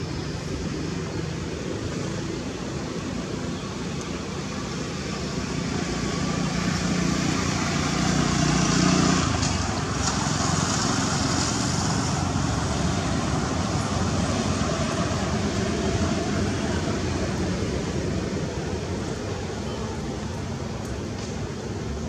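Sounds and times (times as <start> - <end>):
traffic rushing: 0.0 - 22.0
vehicle passing: 5.0 - 18.9.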